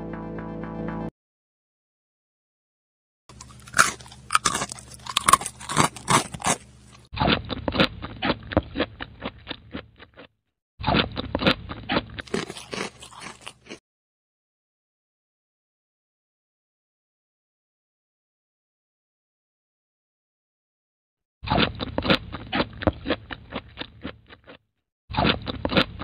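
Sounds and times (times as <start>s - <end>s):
crunchy bites and chewing: 3.3s - 13.8s, 21.4s - 26.0s.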